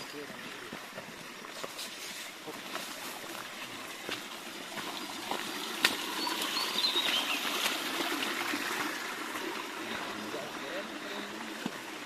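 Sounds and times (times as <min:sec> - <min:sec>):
running water: 0:00.0 - 0:12.0
footsteps knocking on stones: 0:00.6 - 0:06.1
high bird chirps: 0:06.1 - 0:07.5.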